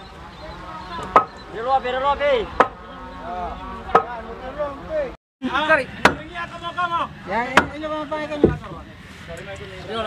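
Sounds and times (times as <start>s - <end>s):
sharp ringing knocks on timber: 3.9s - 4.2s, 7.6s - 7.8s.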